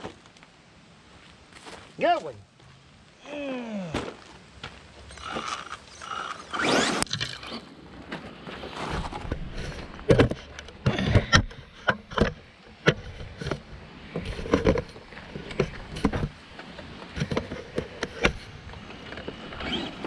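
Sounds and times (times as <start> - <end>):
footsteps on dry dirt: 1.0 - 3.2, 3.8 - 5.7.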